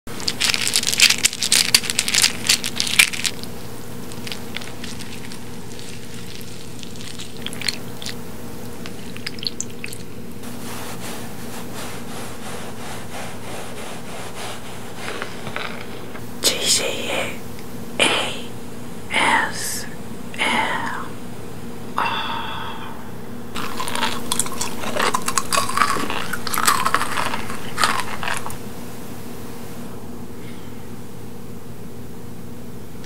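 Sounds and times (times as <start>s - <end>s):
steady low hum: 0.1s - 33.0s
hard candies rattling in hand: 0.2s - 3.5s, 4.1s - 8.2s, 23.6s - 28.6s
wooden spoon stirring wet clicks: 0.2s - 10.1s, 23.6s - 28.6s
knife scraping cotton candy: 10.4s - 16.2s.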